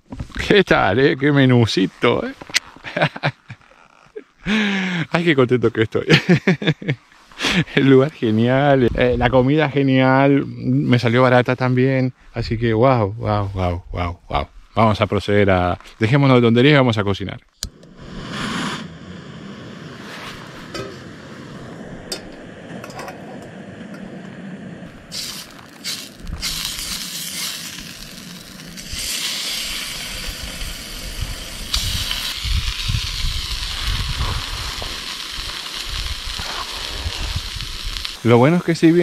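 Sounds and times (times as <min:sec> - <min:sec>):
steak sizzling in a pan: 0:25.0 - 0:39.0.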